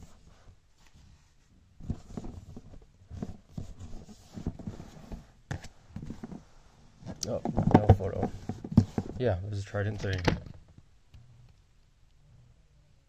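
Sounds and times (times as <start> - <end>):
handling knocks and rustles: 1.8 - 6.4, 7.0 - 10.8.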